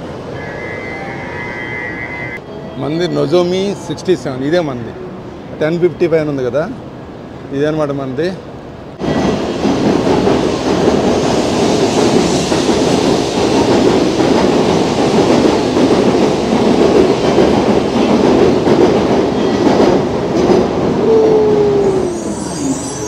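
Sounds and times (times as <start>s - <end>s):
train brake whine: 0.2s - 2.7s, 21.1s - 23.0s
train wheel and air rush: 8.7s - 23.0s.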